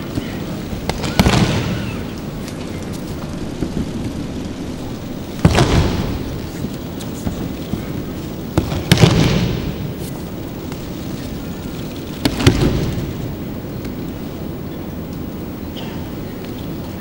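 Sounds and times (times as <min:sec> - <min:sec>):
body thudding onto mats: 0:05.3 - 0:07.9.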